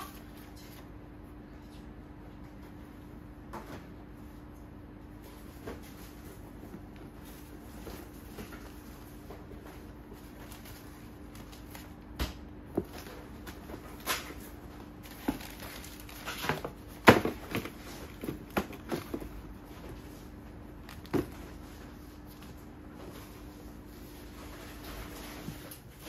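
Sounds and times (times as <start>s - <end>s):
tissue paper rustling: 15.0s - 16.7s.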